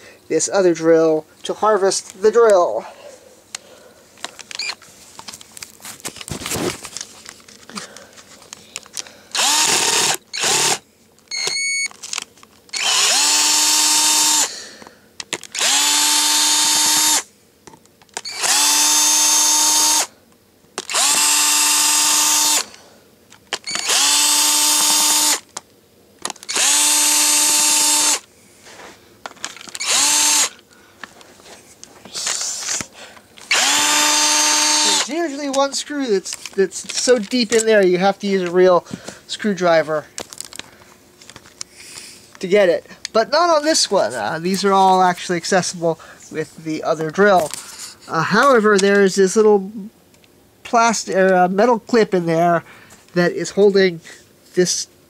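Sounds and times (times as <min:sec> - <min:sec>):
cordless drill whining: 0:04.4 - 0:04.8, 0:09.3 - 0:11.9, 0:12.7 - 0:14.5, 0:15.4 - 0:17.3, 0:18.2 - 0:20.1, 0:20.8 - 0:22.8, 0:23.5 - 0:25.5, 0:26.4 - 0:28.3, 0:29.7 - 0:30.6, 0:33.4 - 0:35.4.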